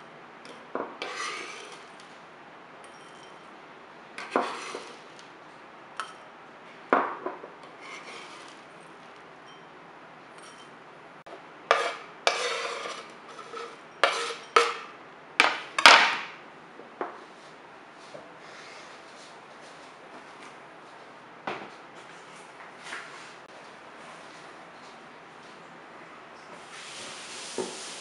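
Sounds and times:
knife scraping cutting board: 1.0s - 2.0s, 4.2s - 5.1s, 7.7s - 8.6s, 11.7s - 14.9s.

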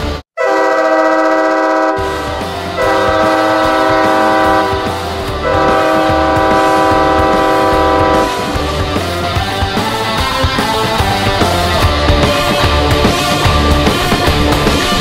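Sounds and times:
goal horn blasts: 0.4s - 8.7s
music with a beat: 2.1s - 15.0s.

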